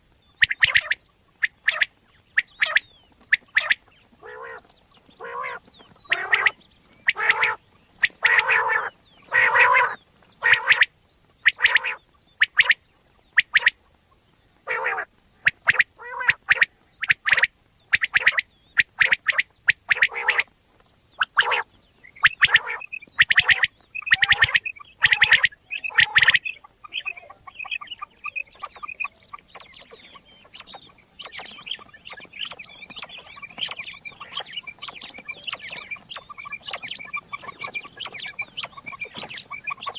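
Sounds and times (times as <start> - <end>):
quail calling: 0.0 - 39.9
rapid twittering notes: 22.0 - 39.9.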